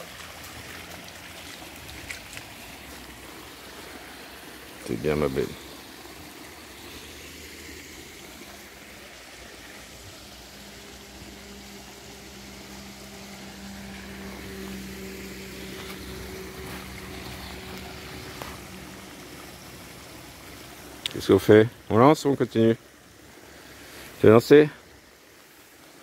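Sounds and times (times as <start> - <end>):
river water rushing: 0.0 - 26.0
motor droning: 5.4 - 20.9.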